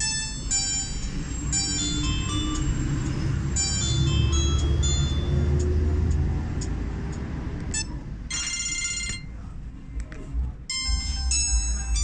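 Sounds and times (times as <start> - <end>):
phone ringtone melodies: 0.0 - 5.9, 7.7 - 9.4, 10.7 - 12.0.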